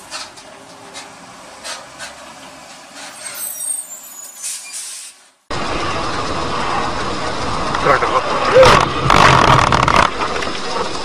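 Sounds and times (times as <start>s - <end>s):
road hiss: 0.0s - 9.2s
brief high squeal: 3.0s - 5.2s
loud dense noise: 5.5s - 11.0s.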